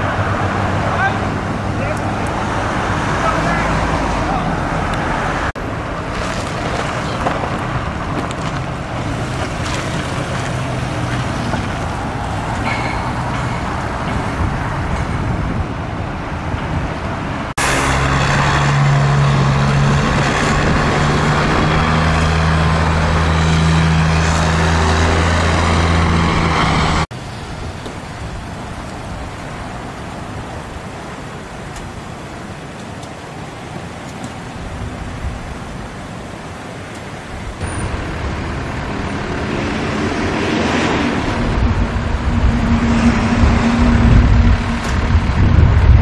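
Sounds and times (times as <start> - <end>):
traffic noise: 0.0 - 46.0
vehicle engines rumbling: 0.0 - 46.0
truck engine running loudly: 17.6 - 27.3, 37.6 - 46.0.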